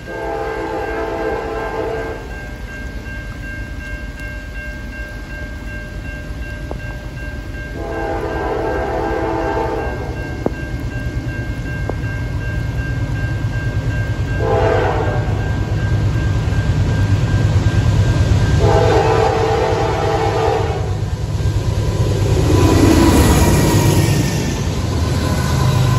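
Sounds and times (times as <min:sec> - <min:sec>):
locomotive air horn blasts: 0:00.0 - 0:02.3, 0:07.8 - 0:10.1, 0:14.4 - 0:15.4, 0:18.6 - 0:21.0
crossing signal ringing: 0:00.0 - 0:25.9
low rumble of train: 0:00.0 - 0:25.9.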